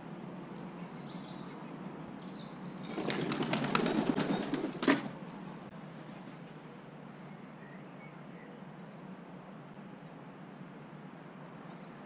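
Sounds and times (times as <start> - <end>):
small birds chirping faintly: 0.0 - 12.0
crow wings flapping: 2.9 - 5.2.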